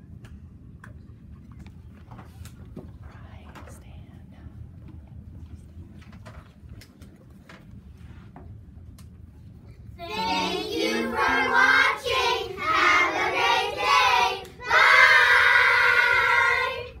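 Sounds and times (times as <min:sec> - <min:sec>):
children singing in unison: 0:10.0 - 0:17.0.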